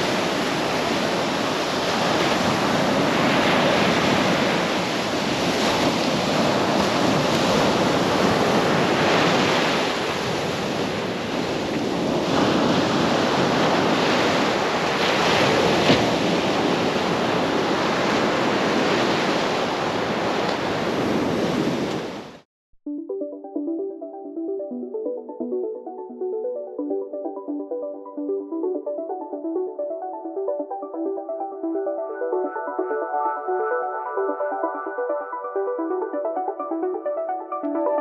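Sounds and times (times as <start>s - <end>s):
small waves breaking on sand: 0.0s - 22.4s.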